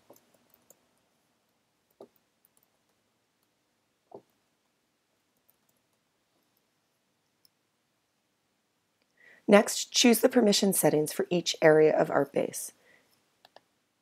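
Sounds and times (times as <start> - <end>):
faint clicks: 13.4 - 13.7.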